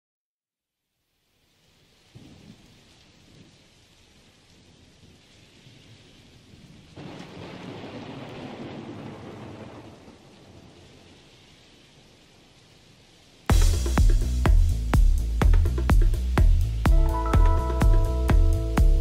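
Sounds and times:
steady rain: 0:00.8 - 0:19.0
rumble of thunder: 0:02.1 - 0:03.6, 0:06.4 - 0:11.2.

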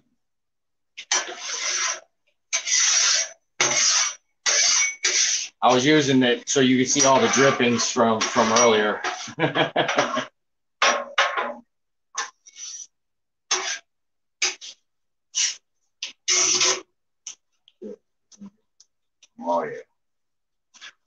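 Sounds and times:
metal spatula scraping griddle: 0:01.0 - 0:10.3, 0:12.2 - 0:12.9, 0:13.5 - 0:14.8, 0:16.2 - 0:16.9.

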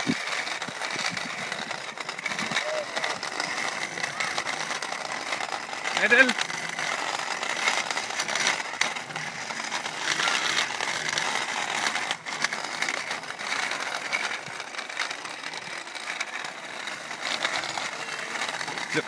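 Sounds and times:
wind noise on microphone: 0:00.0 - 0:03.2.

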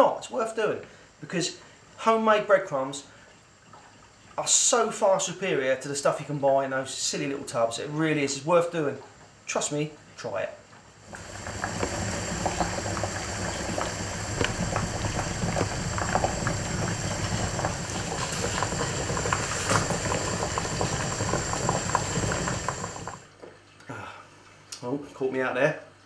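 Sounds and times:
water boiling with bubbling pops: 0:03.1 - 0:04.5, 0:10.6 - 0:23.6.

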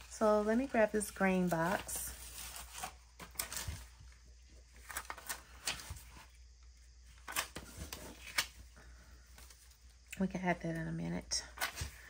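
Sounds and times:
paper sticker sheets rustling: 0:00.0 - 0:06.4.

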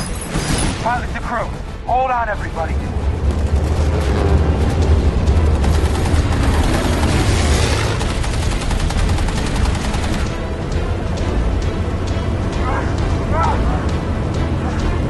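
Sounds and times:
bomber engines droning: 0:00.0 - 0:15.0
rushing noise: 0:00.0 - 0:15.0
rapid machine-gun fire: 0:03.4 - 0:10.4.

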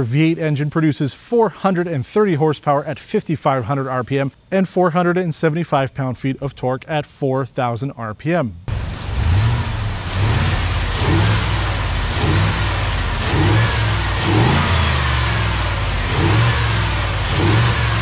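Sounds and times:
pickup engine revving: 0:08.7 - 0:18.0.

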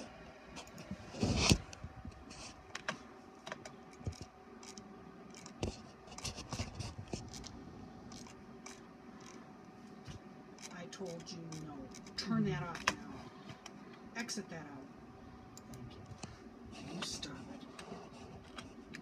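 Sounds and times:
faint steady hum: 0:00.0 - 0:19.0
paper scraping: 0:01.1 - 0:01.6, 0:05.4 - 0:07.5.

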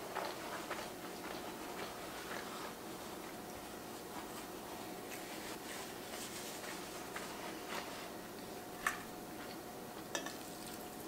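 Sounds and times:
paper napkin rustling: 0:00.4 - 0:08.2.

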